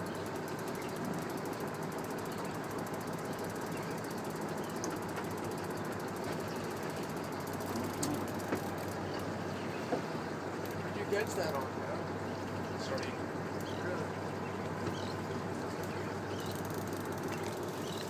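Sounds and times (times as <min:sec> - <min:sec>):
fishing reel clicking: 0:16.4 - 0:18.0.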